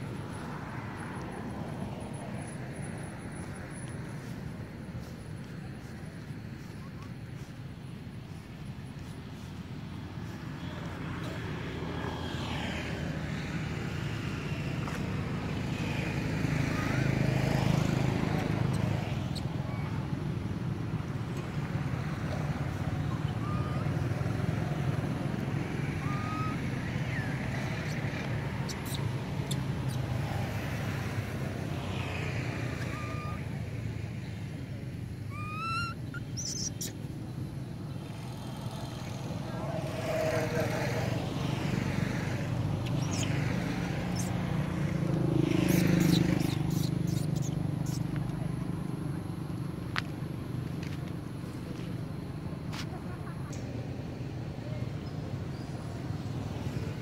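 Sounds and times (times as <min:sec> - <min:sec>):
monkey coo: 0:22.7 - 0:25.0, 0:25.9 - 0:30.2, 0:32.7 - 0:33.5, 0:35.3 - 0:36.9, 0:45.7 - 0:48.0
high chirp: 0:35.3 - 0:37.0.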